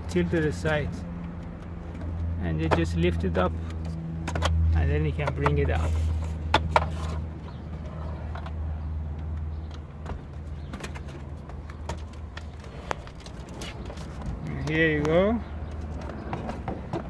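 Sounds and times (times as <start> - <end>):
plastic dashboard clicks and knocks: 3.7 - 5.8.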